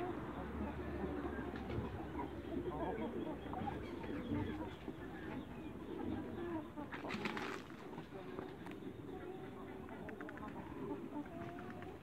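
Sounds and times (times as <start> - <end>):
chickens clucking softly: 0.0 - 12.0.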